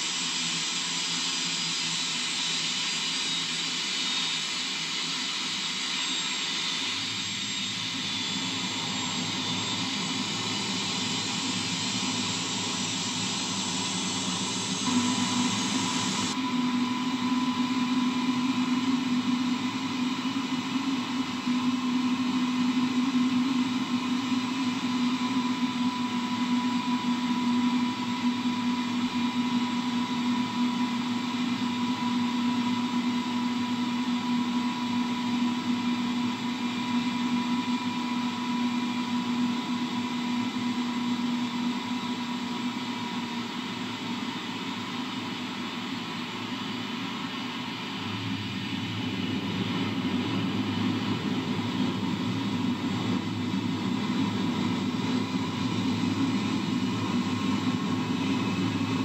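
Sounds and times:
jet engine hum: 0.0s - 31.4s, 36.1s - 59.0s
thin whine: 0.0s - 32.0s.

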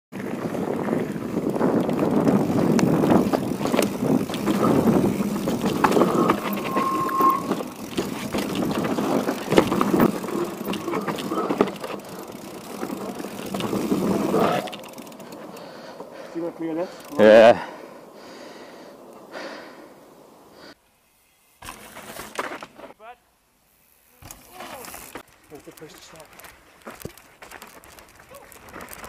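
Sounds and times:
bike tyres rolling on loose dirt: 0.1s - 23.0s, 23.6s - 29.0s
bike rattling and knocking: 0.2s - 15.9s
brief squeal: 6.0s - 7.7s.

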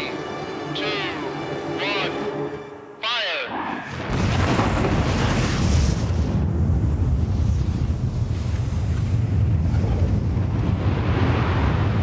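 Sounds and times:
deep explosion rumble: 4.0s - 12.0s.

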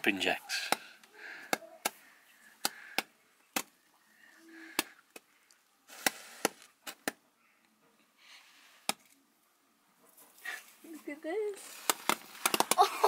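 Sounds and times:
toy caps popping: 11.8s - 13.0s.

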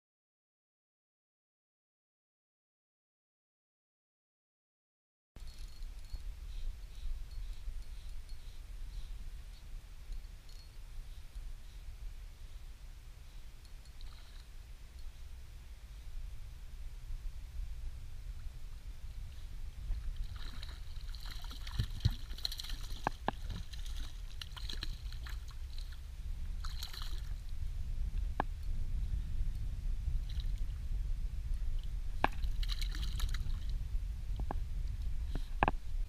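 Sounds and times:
low wind rumble on microphone: 5.4s - 36.0s
fish splashing at surface: 26.6s - 27.4s.

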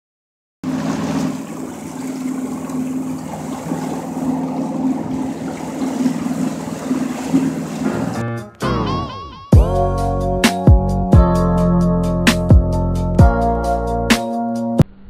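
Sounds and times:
hull and wake rushing: 0.6s - 8.2s
outboard motor running: 0.6s - 8.2s.

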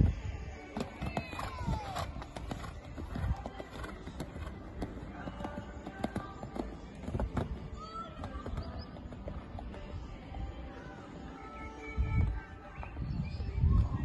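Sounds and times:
hoofbeats on sand: 0.7s - 10.6s.

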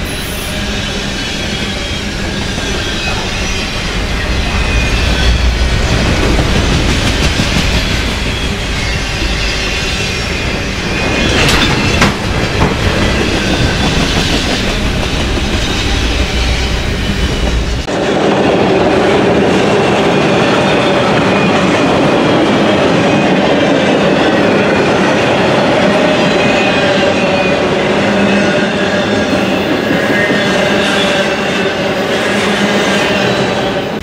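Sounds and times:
train wheels rumbling on track: 0.0s - 34.0s.

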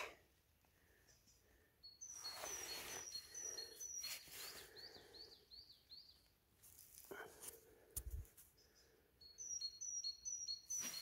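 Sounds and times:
songbird calling: 1.1s - 6.3s, 8.6s - 11.0s.

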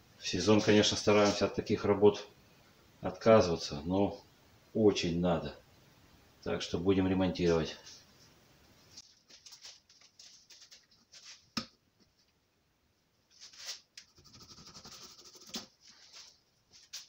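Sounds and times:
knife scratching rubber: 13.4s - 15.7s.

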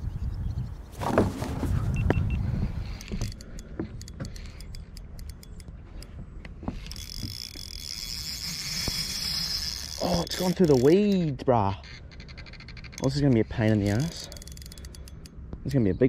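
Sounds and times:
fishing reel clicking: 2.9s - 5.7s, 6.8s - 11.4s, 12.2s - 15.4s.

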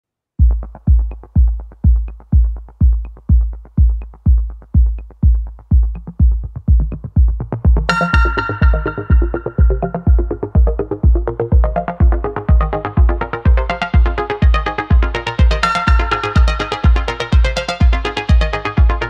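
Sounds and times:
deep kick drum: 0.4s - 19.0s
bright synthesizer chord: 7.9s - 19.0s.

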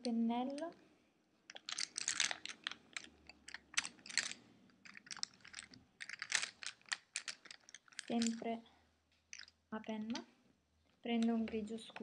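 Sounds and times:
makeup cases clicking and rattling: 1.5s - 8.6s, 9.3s - 10.3s, 11.1s - 12.0s.

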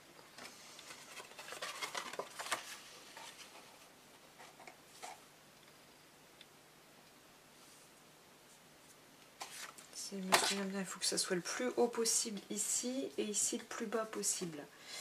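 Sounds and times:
cardstock rustling: 0.4s - 3.8s.

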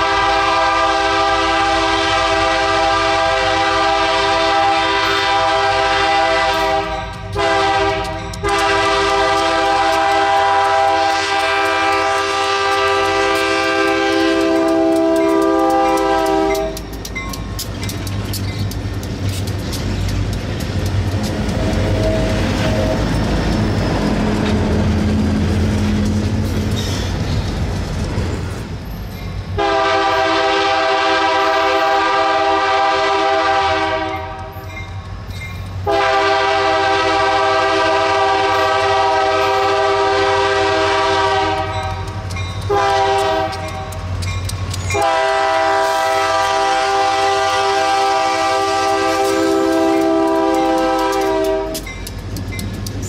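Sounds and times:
locomotive horn blasts: 0.0s - 16.9s, 21.6s - 23.0s, 29.6s - 34.6s, 35.8s - 44.0s, 45.0s - 51.9s.

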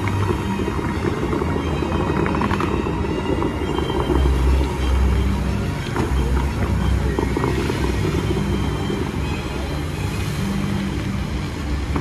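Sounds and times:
music over loudspeakers: 0.0s - 12.0s
water jets hissing and splashing: 0.0s - 12.0s.

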